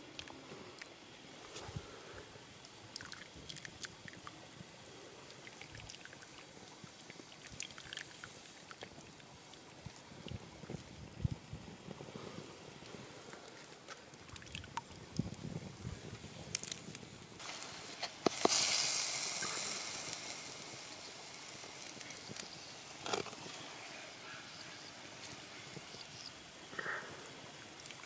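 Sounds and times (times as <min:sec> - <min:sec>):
liquid hissing on hot pot: 0:14.9 - 0:28.0.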